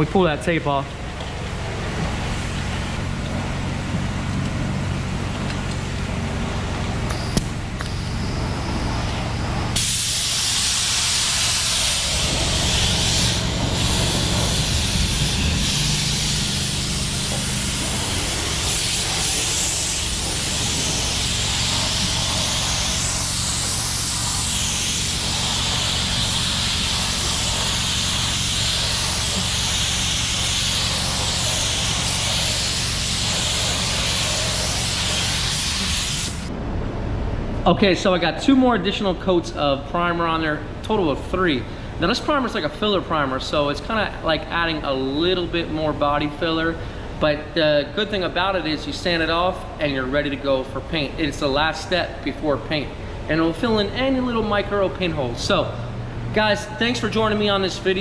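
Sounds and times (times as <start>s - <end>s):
steady low hum: 0.0s - 58.0s
spray gun hissing: 9.8s - 36.5s.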